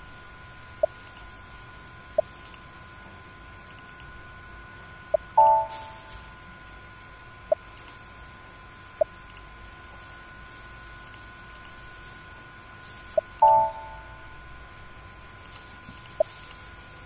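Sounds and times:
computer alert chime: 5.4 - 6.1, 13.4 - 14.2.

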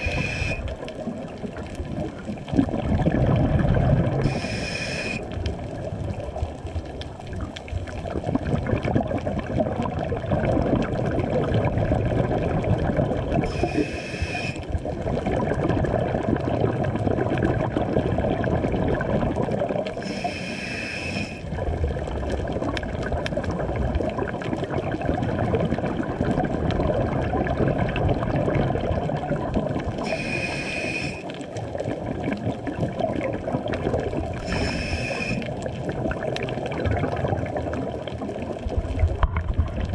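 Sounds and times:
regulator inhale hiss with whistle: 0.0 - 0.7, 4.2 - 5.2, 13.5 - 14.6, 20.0 - 21.4, 30.0 - 31.3, 34.4 - 35.5
gurgling exhaled bubbles: 0.0 - 39.9.

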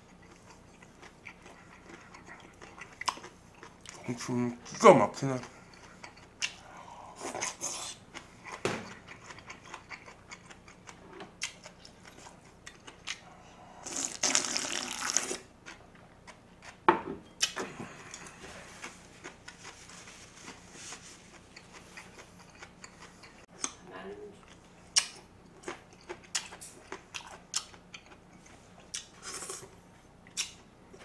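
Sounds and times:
loud slurp of broth: 13.8 - 15.4.

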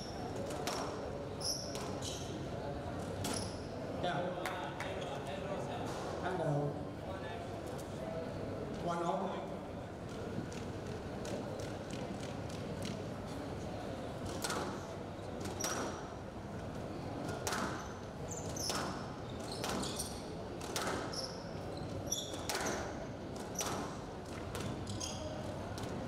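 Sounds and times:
shoes squeaking on floor: 1.4 - 2.4, 17.8 - 20.2, 21.1 - 22.9, 24.6 - 25.5.

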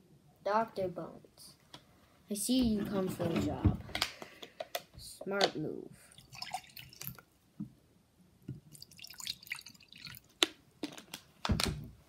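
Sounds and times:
water pouring and dripping: 6.1 - 7.3, 8.6 - 10.4.

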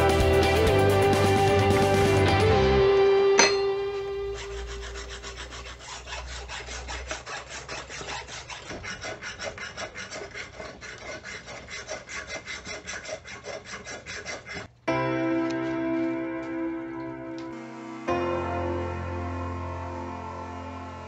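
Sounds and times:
background music: 0.0 - 4.9, 14.9 - 21.0
hand file rasping on steel: 3.4 - 14.8.

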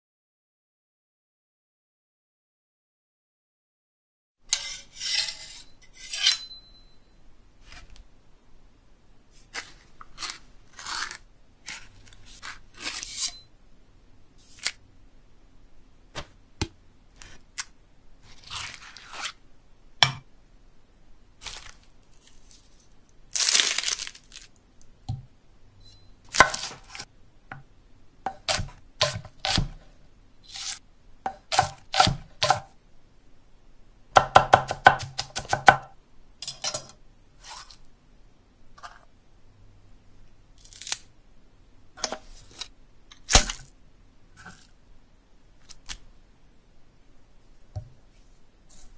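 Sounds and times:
tearing and slicing: 9.4 - 13.4, 23.3 - 24.5, 40.6 - 41.1
knife chopping on wooden board: 28.3 - 29.8, 31.3 - 32.7, 34.2 - 35.9.

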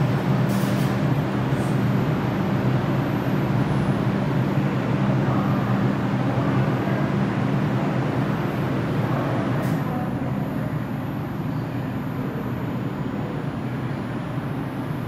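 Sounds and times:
low hum from train: 0.0 - 15.0
subway train pulling in: 0.0 - 15.0.

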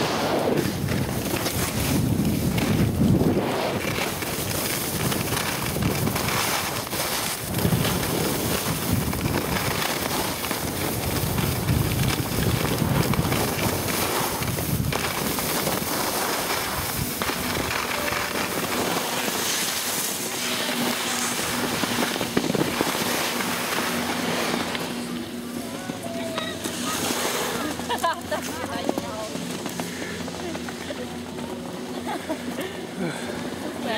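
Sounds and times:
wind buffeting microphone: 0.0 - 31.8
skis scraping over snow: 0.0 - 33.9.

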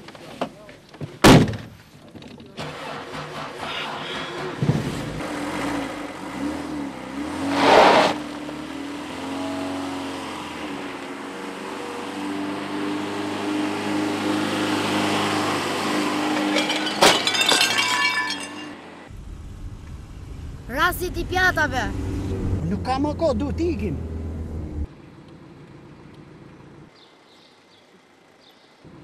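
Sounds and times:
car engine revving: 2.6 - 16.9, 19.1 - 24.9.

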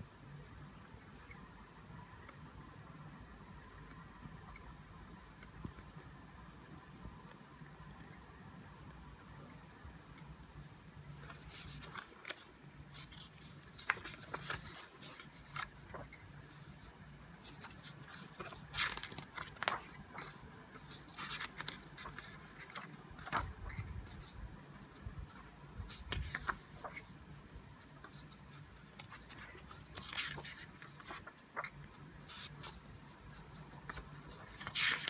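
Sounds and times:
faint low hum: 0.0 - 35.0
book pages rustling: 11.1 - 35.0.

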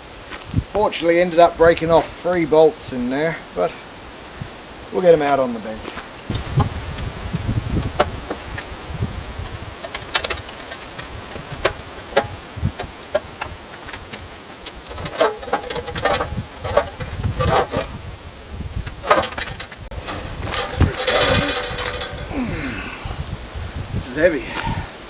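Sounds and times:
steel drum clinking and knocking: 14.8 - 18.0, 18.9 - 22.5.

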